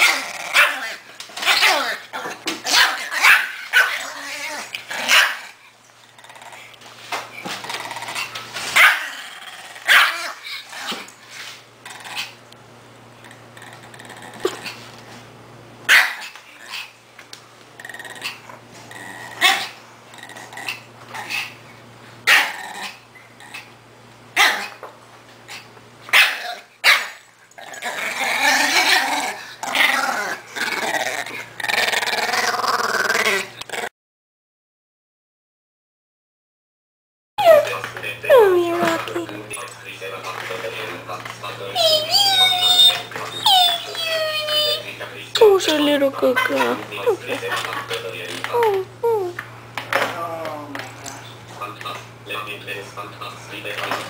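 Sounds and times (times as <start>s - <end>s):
small dog barking: 0.0s - 1.8s, 2.7s - 4.0s, 5.1s - 5.5s, 8.8s - 9.1s, 9.9s - 10.4s, 15.9s - 16.3s, 22.3s - 22.5s, 24.4s - 24.7s, 26.1s - 27.2s
puppy growling: 0.0s - 6.8s, 7.5s - 11.1s, 11.8s - 12.4s, 13.2s - 14.9s, 17.8s - 21.6s, 22.3s - 23.8s, 26.3s - 33.9s, 37.4s - 39.6s, 41.7s - 44.9s, 45.6s - 49.4s.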